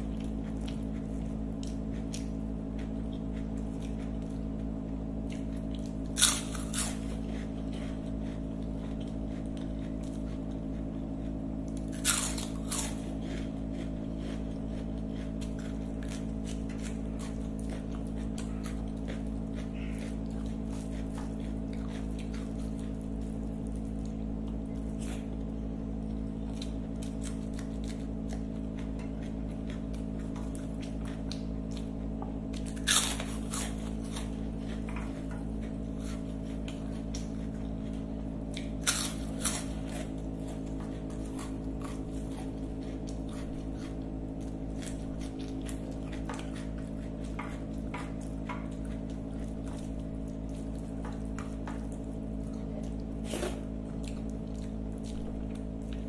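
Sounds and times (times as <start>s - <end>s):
food squishing and chewing: 0.0s - 56.0s
steady low hum: 0.0s - 56.0s
loud crunches: 5.3s - 25.5s, 32.6s - 38.0s, 38.6s - 52.1s.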